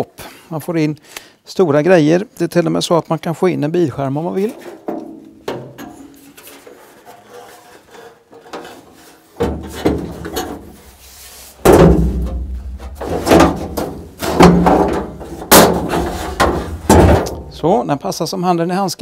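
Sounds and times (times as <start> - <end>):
metal panel bumping and scraping: 4.5 - 17.7
heavy thumps and clangs: 4.6 - 6.7, 8.4 - 11.0, 11.6 - 17.6.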